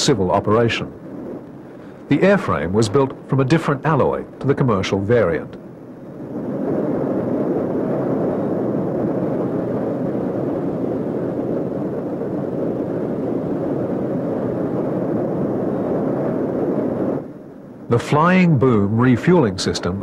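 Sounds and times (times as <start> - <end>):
jet engines roaring: 0.0 - 15.0.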